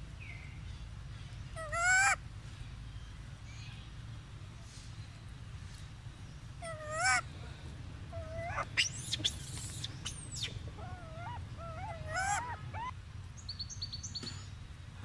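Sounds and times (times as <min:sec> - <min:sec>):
steady low hum: 0:00.0 - 0:15.0
squeaky animal calls: 0:08.2 - 0:12.9.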